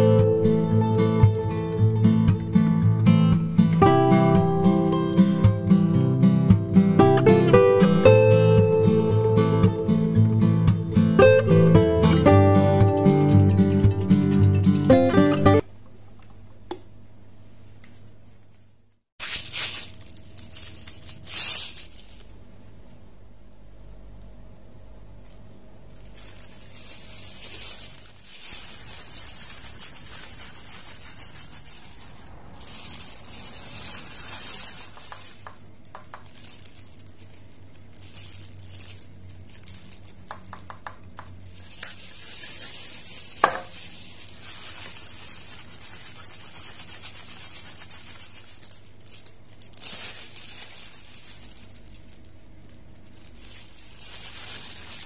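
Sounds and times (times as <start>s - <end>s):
steady low hum: 15.6s - 55.0s.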